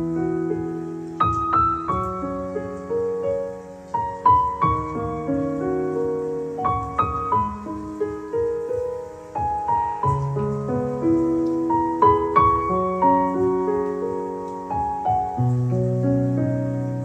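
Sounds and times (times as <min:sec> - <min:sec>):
solo piano music: 0:00.0 - 0:17.0.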